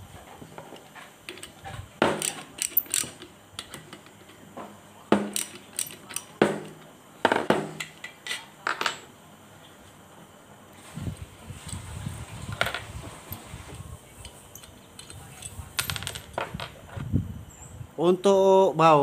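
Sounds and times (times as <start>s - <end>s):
metal parts clicking and clinking: 0.8s - 4.4s, 5.3s - 6.4s, 14.2s - 16.7s.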